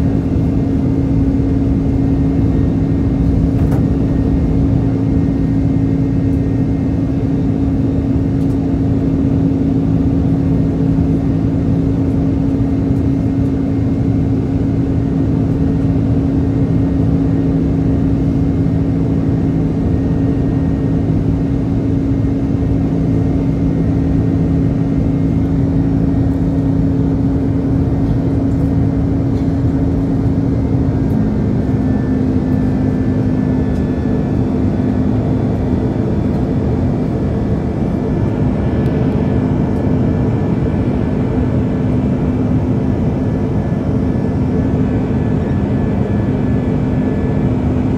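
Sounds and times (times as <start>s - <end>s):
low drone: 0.0s - 11.1s
jet engine and airflow rush: 0.0s - 47.9s.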